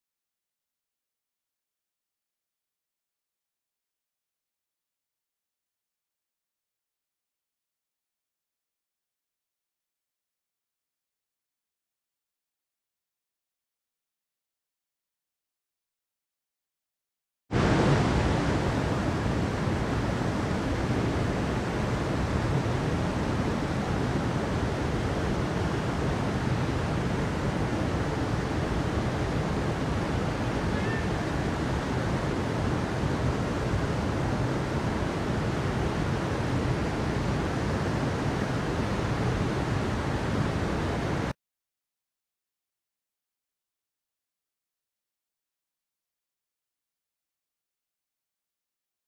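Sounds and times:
stream rushing over rocks: 17.6s - 41.3s.

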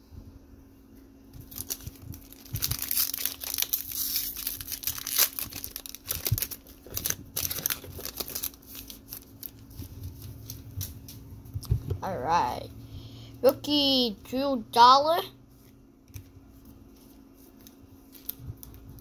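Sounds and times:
foil wrapper crinkling and tearing: 1.3s - 10.9s, 17.5s - 19.0s.

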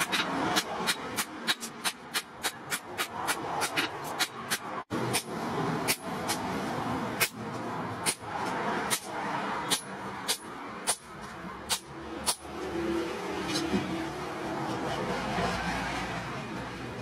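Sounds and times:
hammer striking hot steel: 0.0s - 6.5s, 7.2s - 7.4s, 9.7s - 11.1s, 11.7s - 12.5s.

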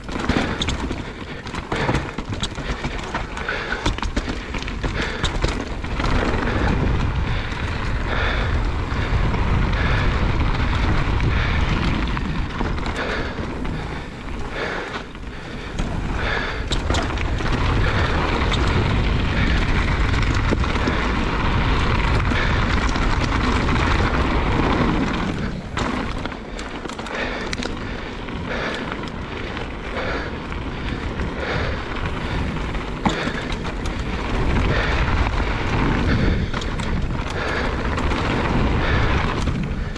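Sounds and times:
bike rattling over bumps: 0.0s - 39.9s
tyres rolling over dirt: 0.0s - 39.9s
wind buffeting microphone: 0.0s - 39.9s.

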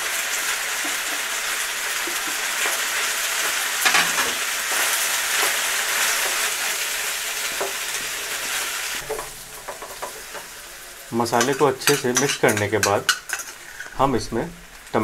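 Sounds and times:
food sizzling in a frying pan: 0.0s - 15.0s
spatula knocking on pan: 9.0s - 10.5s, 11.4s - 13.3s.

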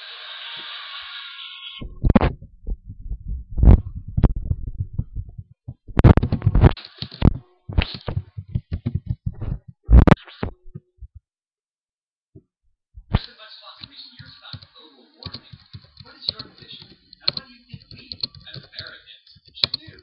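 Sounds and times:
keyboard typing thumps: 1.8s - 11.2s, 15.3s - 20.0s.

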